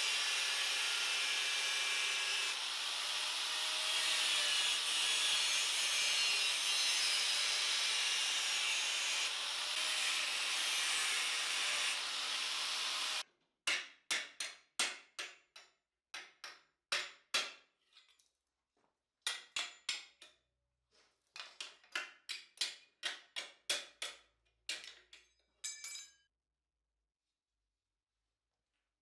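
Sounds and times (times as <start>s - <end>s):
angle grinder on steel: 0.0s - 13.2s.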